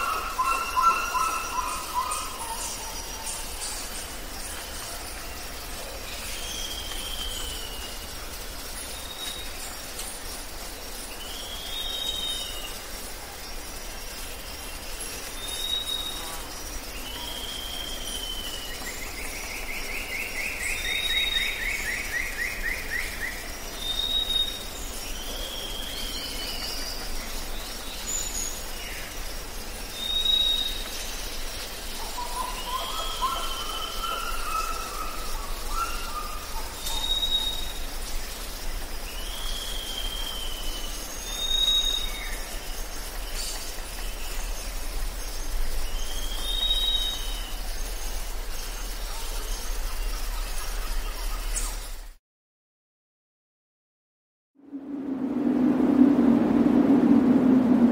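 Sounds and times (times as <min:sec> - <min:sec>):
outdoor background noise: 0:00.0 - 0:52.2, 0:54.6 - 0:57.9
bird high whistle: 0:35.7 - 0:37.7
lower slurred bird notes: 0:54.7 - 0:57.9.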